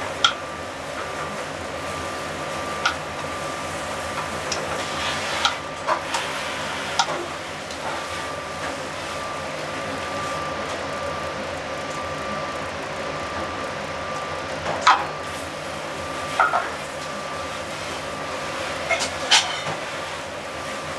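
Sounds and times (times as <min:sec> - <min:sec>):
vegetables sizzling in a pan: 0:15.3 - 0:20.9.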